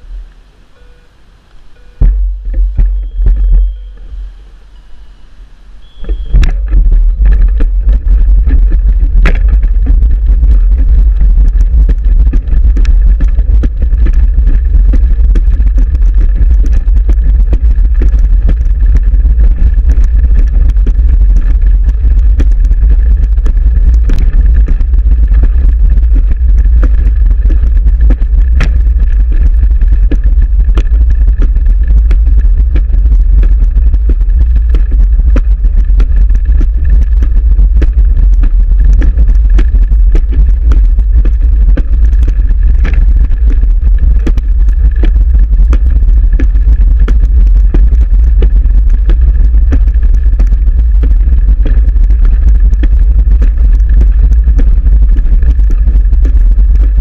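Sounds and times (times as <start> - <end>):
wind rumble on microphone: 0.0 - 0.5, 2.0 - 57.0
short high beep: 0.7 - 1.2, 3.0 - 6.4.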